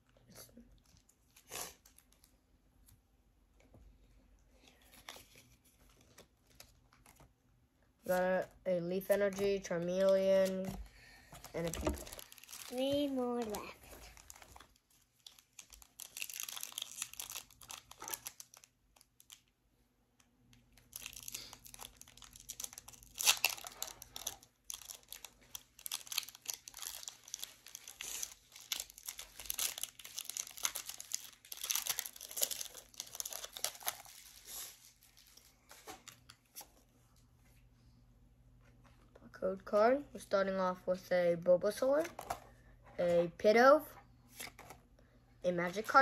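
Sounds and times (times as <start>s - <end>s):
foil wrapper tearing and crinkling: 11.5s - 19.4s, 20.7s - 36.2s.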